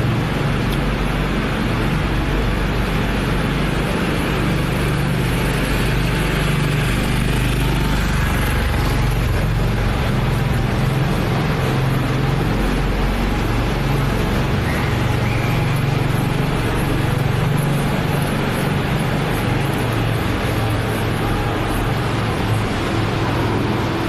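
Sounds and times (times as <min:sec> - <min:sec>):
slow traffic rumble on concrete: 0:00.0 - 0:24.0.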